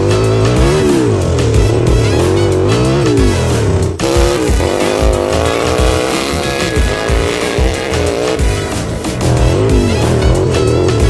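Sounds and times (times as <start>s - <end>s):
music with steady beat: 0.0s - 11.0s
toy quad engine revving: 4.0s - 8.7s.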